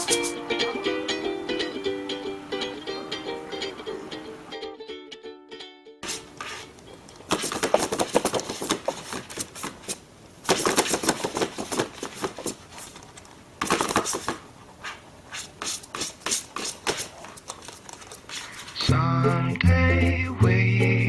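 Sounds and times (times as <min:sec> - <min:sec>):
paper crackling on wooden floor: 0:06.0 - 0:14.4, 0:15.4 - 0:18.8
paper rustling: 0:06.0 - 0:18.8.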